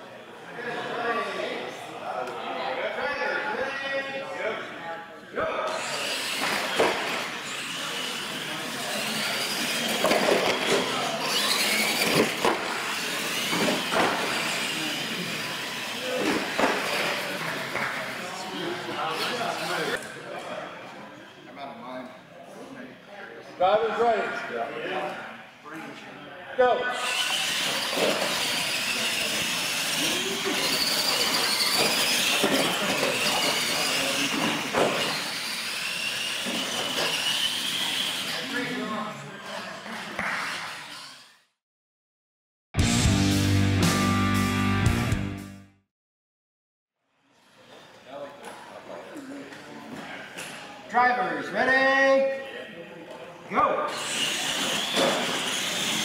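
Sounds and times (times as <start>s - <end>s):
electric motors and gears whining: 5.7s - 20.0s, 26.9s - 41.5s, 53.9s - 56.0s
toy trucks thumping on ramps: 9.5s - 14.6s, 27.2s - 38.1s.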